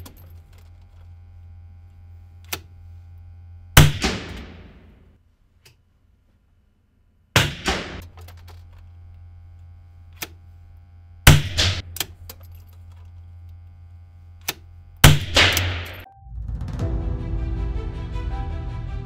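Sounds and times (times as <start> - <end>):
low steady hum: 0.0 - 16.1
rifle shots: 3.8 - 4.9, 7.4 - 8.1, 11.3 - 11.8, 15.0 - 16.1.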